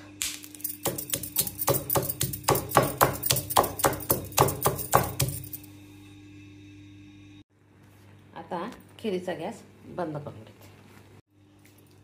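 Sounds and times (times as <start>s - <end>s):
stone pestle pounding in mortar: 0.8s - 5.6s.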